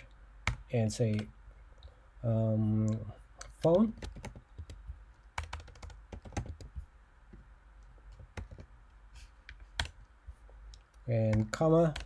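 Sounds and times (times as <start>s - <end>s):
keyboard and mouse clicks: 7.8s - 8.7s.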